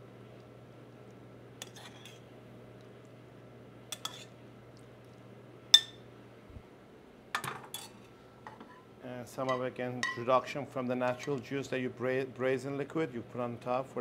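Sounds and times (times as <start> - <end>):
steady low hum: 0.0 - 14.0
spoon clinking against pan: 5.8 - 6.0.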